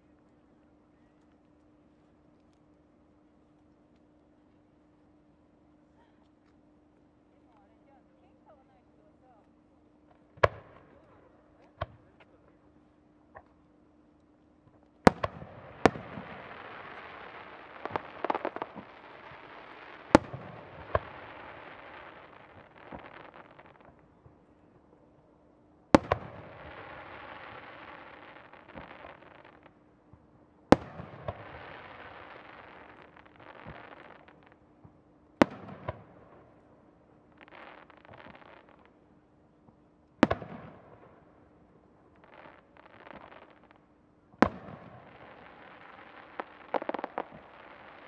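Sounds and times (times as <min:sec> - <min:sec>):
crackling sparks: 0:13.4 - 0:24.2, 0:26.0 - 0:29.9, 0:30.7 - 0:34.6, 0:37.2 - 0:39.0, 0:42.1 - 0:48.0
firework shells bursting: 0:15.1 - 0:24.0, 0:45.1 - 0:48.0.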